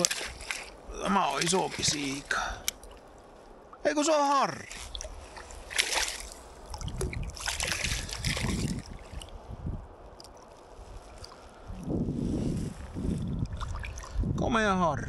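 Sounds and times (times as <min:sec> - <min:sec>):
fish splashing at water surface: 0:00.0 - 0:03.2, 0:04.7 - 0:09.4, 0:13.5 - 0:14.2
water sloshing: 0:00.0 - 0:03.8, 0:04.6 - 0:14.3.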